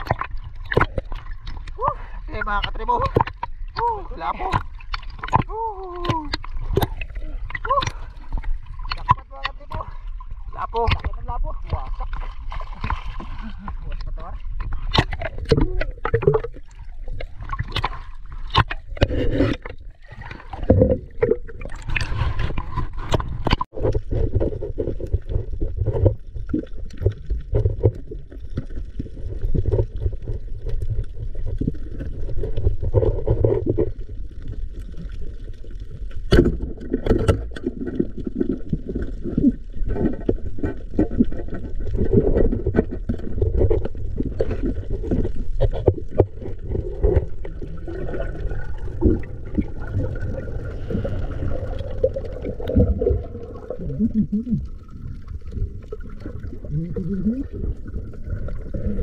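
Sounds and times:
muffled water gurgling and sloshing: 0.0 - 59.0
knocks and scrapes: 6.1 - 34.5, 36.2 - 53.2.

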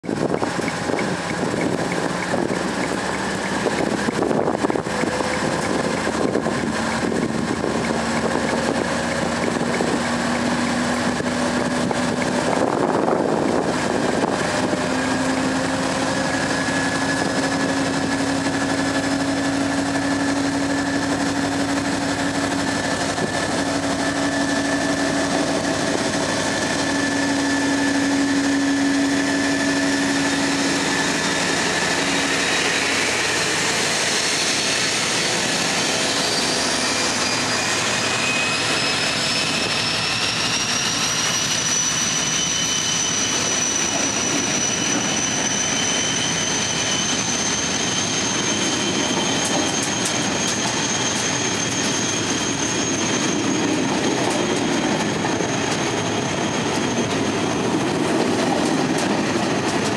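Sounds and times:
diesel locomotive engine drone: 0.0 - 59.9.

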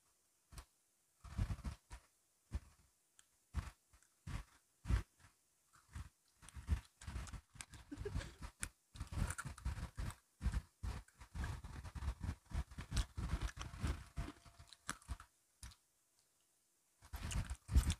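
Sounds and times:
crunchy biscuit sticks being chewed: 2.6 - 15.8, 17.0 - 17.9.

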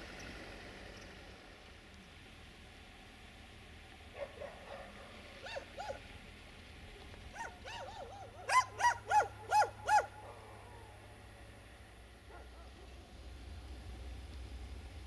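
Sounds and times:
dog barking: 4.2 - 6.0, 7.3 - 11.0, 12.3 - 13.0.

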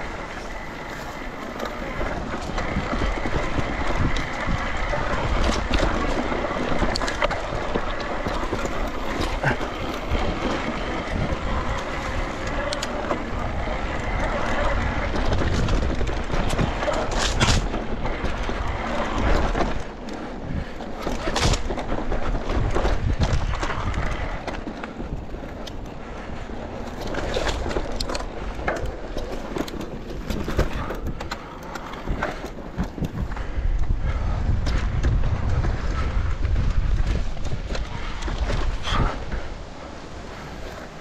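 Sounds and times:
bike rattling: 0.0 - 41.0
bike tyres rolling: 0.0 - 41.0.

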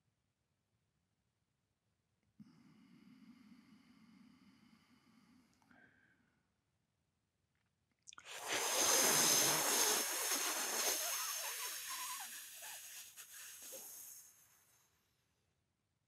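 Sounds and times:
breath blown through pursed lips: 8.3 - 14.8.

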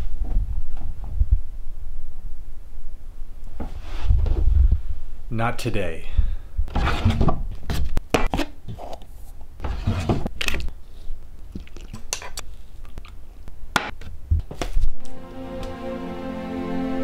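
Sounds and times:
music with long held notes: 15.0 - 17.0.

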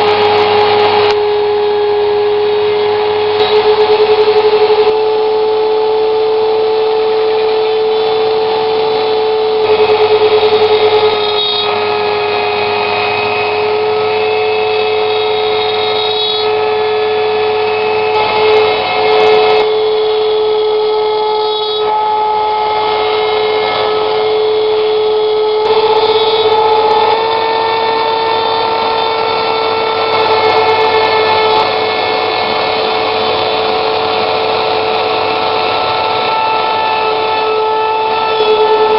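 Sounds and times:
router spindle motor whining: 0.0 - 38.9
high tones changing pitch: 2.3 - 38.9.

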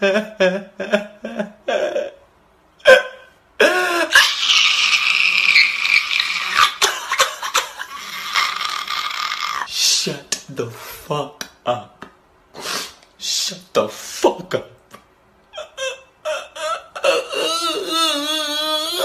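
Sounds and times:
man sobbing and wailing: 0.0 - 10.0, 15.5 - 19.0.

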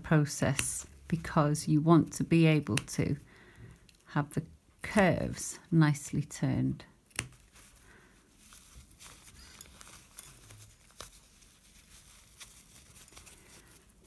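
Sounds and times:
fabric rustling: 7.3 - 14.0.

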